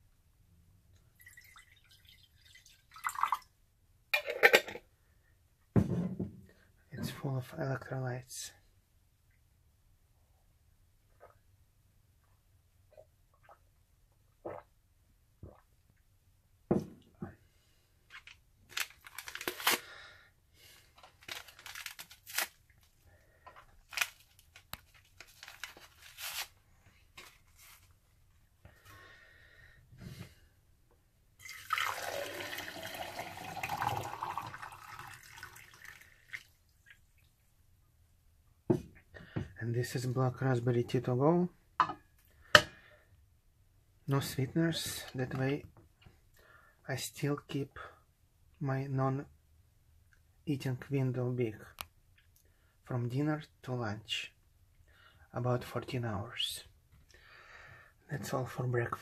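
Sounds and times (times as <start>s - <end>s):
liquid pouring into a mug: 1.2s - 3.5s, 31.4s - 37.0s
wrapper tearing and crinkling: 18.7s - 19.9s, 21.0s - 22.9s, 23.8s - 26.6s.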